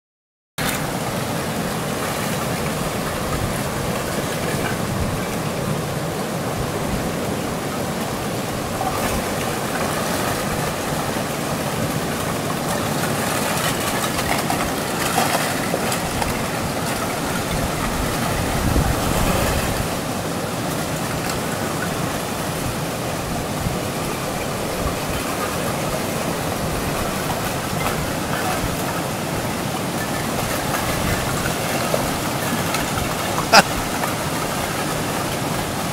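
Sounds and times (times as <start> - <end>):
lake ice grinding and crunching: 8.9 - 19.8.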